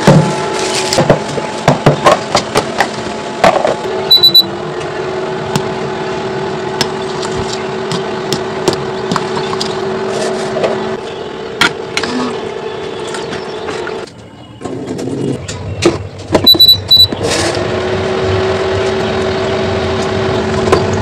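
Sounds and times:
appliance humming: 0:00.0 - 0:21.0
short high electronic beep: 0:04.1 - 0:04.5, 0:16.5 - 0:17.2.

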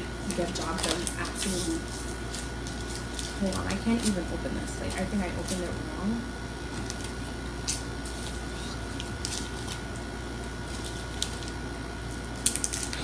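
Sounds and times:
air conditioner hum: 0:00.0 - 0:13.0
plastic package crinkling: 0:00.3 - 0:04.2, 0:06.7 - 0:10.0, 0:10.6 - 0:13.0.

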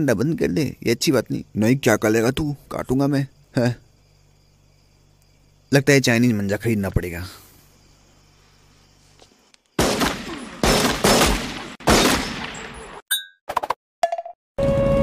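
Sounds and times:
gunshots with echo: 0:09.8 - 0:13.0.

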